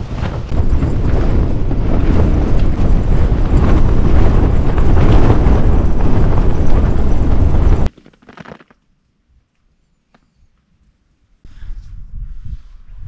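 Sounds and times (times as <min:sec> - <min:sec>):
strong wind buffeting a tent: 0:00.0 - 0:07.9, 0:11.5 - 0:13.0.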